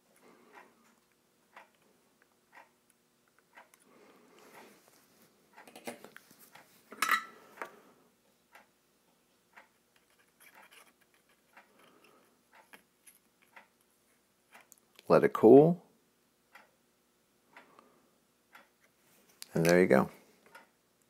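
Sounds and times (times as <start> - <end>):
clock ticking: 1.5 - 1.8, 2.4 - 3.9, 9.5 - 9.7, 13.5 - 13.8, 16.5 - 16.8, 17.5 - 18.8, 19.6 - 20.8.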